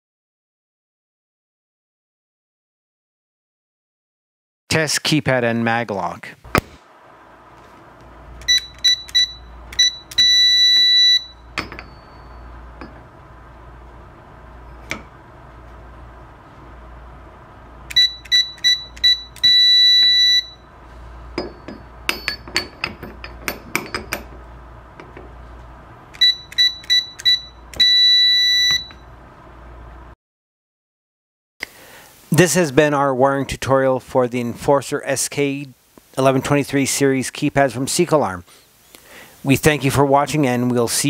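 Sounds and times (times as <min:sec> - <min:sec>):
keypad short beeps: 0:08.4 - 0:12.4, 0:17.9 - 0:20.6, 0:26.2 - 0:29.0
keypad long beep: 0:08.4 - 0:12.5, 0:17.9 - 0:20.7, 0:26.2 - 0:29.1.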